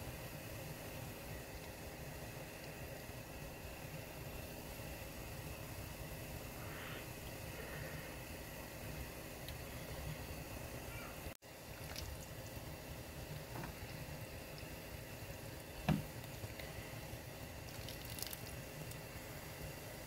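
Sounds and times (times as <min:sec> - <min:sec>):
stew bubbling in a pot: 0:00.0 - 0:20.0
wet squelch: 0:11.7 - 0:12.6, 0:17.6 - 0:19.0.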